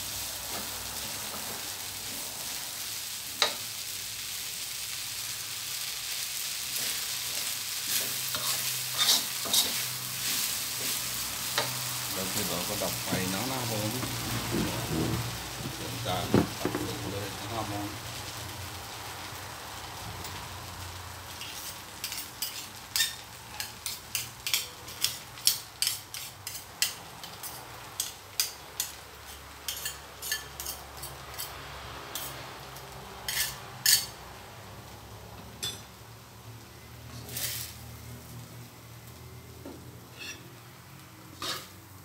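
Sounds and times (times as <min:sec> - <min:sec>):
faint sizzle: 0:00.0 - 0:42.0
metal spatula scraping a wok: 0:06.7 - 0:11.9, 0:21.3 - 0:32.4, 0:33.2 - 0:34.2, 0:37.1 - 0:37.9, 0:40.0 - 0:40.6, 0:41.4 - 0:41.8.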